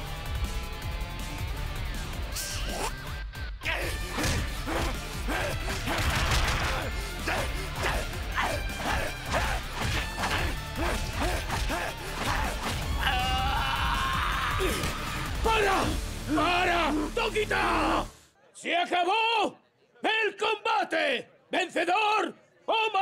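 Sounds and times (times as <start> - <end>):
dramatic music: 0.0 - 18.1
heavy punch impacts: 4.1 - 7.2.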